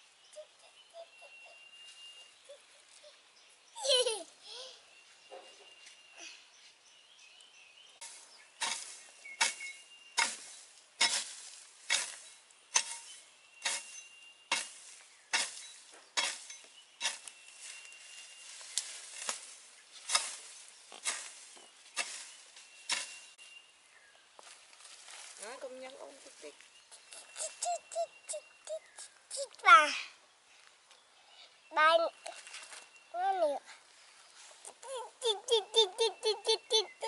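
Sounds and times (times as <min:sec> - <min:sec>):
garden tool striking soil: 0:08.0 - 0:23.5.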